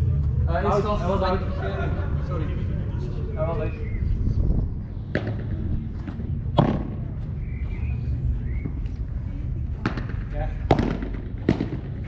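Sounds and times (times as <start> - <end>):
steady low rumble: 0.0 - 12.0
padel ball strikes: 6.6 - 7.0, 9.8 - 12.0.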